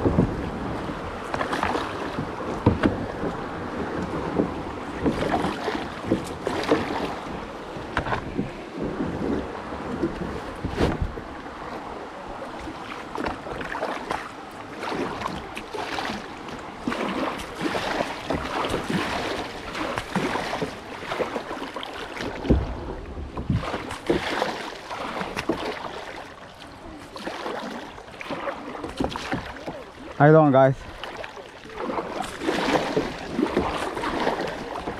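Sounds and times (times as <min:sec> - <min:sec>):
wind on microphone: 0:00.0 - 0:12.8, 0:22.2 - 0:24.6
paddle splashing in water: 0:00.0 - 0:34.9
rushing creek water: 0:00.0 - 0:34.9.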